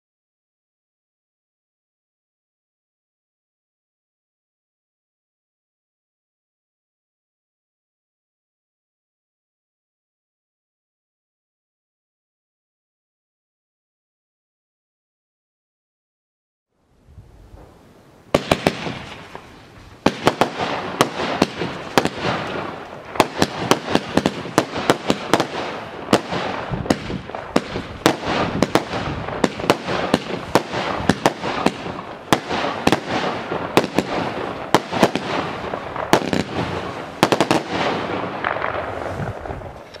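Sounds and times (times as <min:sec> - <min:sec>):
firework bangs: 0:17.5 - 0:40.0.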